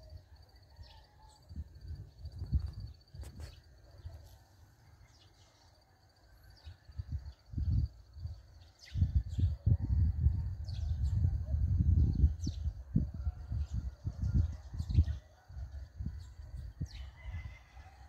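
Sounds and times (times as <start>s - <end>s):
wind buffeting microphone: 1.4s - 3.7s, 6.6s - 18.0s.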